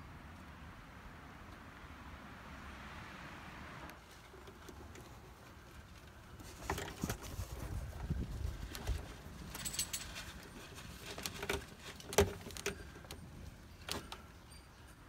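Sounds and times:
wires rustling: 3.9s - 15.0s.

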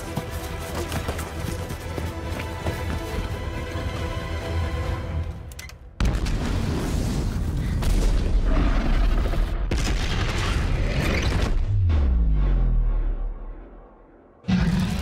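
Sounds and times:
orchestral music: 0.0s - 5.6s.

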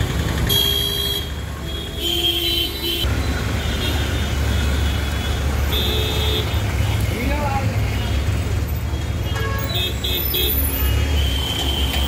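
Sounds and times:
engines rumbling: 0.0s - 12.0s
vehicle horns honking: 0.4s - 3.1s, 3.7s - 6.6s, 9.0s - 12.0s.

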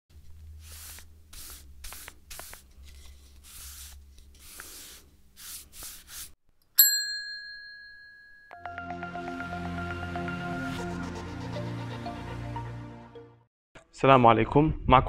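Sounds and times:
scratchy brush swishes: 0.6s - 6.4s
bright ringing chime: 6.8s - 9.0s.

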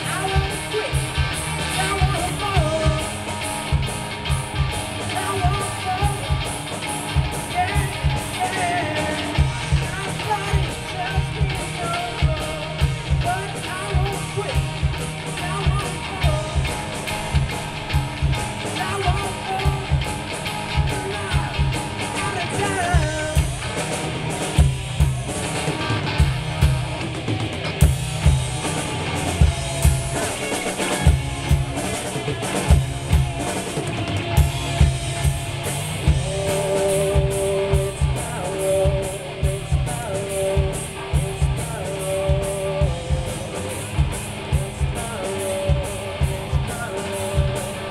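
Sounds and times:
person singing: 0.0s - 3.2s, 5.0s - 6.5s, 7.4s - 14.7s, 18.6s - 20.1s, 20.7s - 23.7s, 36.0s - 47.9s
drum kit beat: 0.0s - 47.9s
electric guitars and bass: 0.0s - 47.9s.

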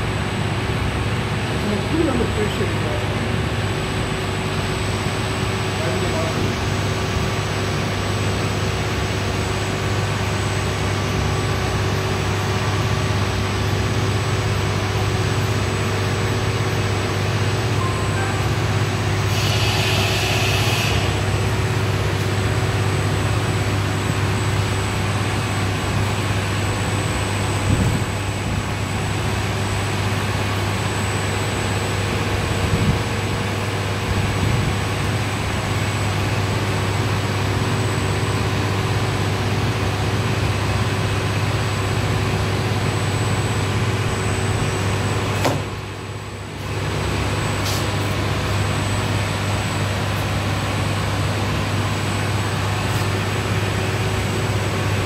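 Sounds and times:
machine hum with rushing noise: 0.0s - 55.0s.

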